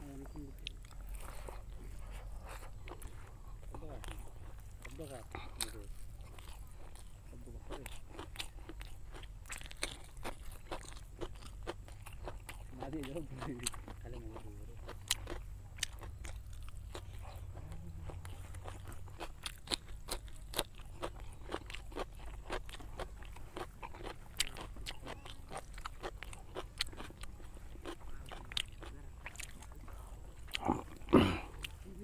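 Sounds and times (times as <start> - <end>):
close-mouthed chewing: 0.0 - 32.0.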